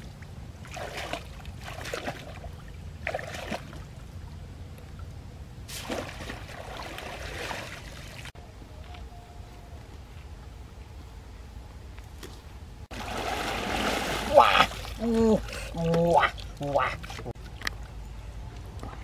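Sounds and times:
basket splashing in muddy water: 12.9 - 16.1.

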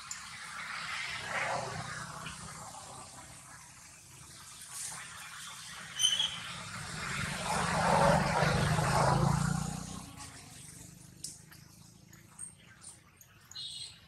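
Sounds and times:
vehicle engine passing: 6.2 - 12.1.

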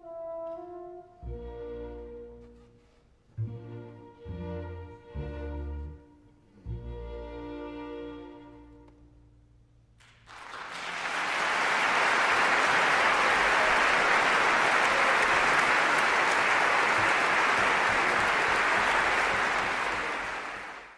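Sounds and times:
audience applause: 10.0 - 20.9.

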